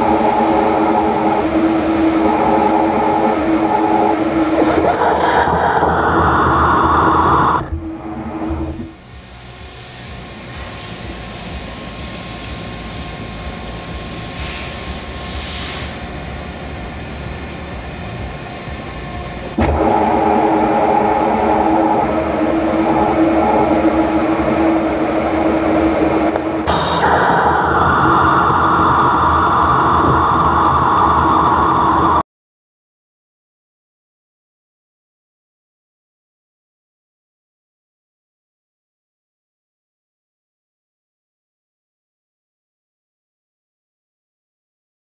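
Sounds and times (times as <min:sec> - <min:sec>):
lathe running: 0:00.0 - 0:15.4, 0:16.0 - 0:32.2
lathe cutting steel: 0:00.0 - 0:32.2.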